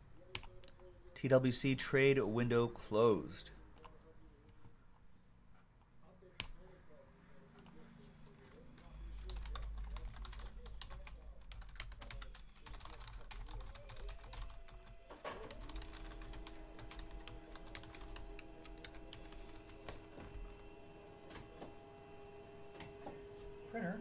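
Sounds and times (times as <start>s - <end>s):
computer keyboard typing: 0.3s - 0.8s, 8.8s - 21.8s.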